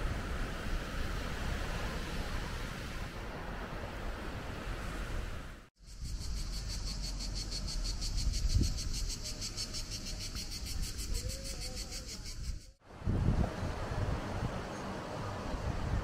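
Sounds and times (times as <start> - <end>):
insects chirping: 5.8 - 12.8.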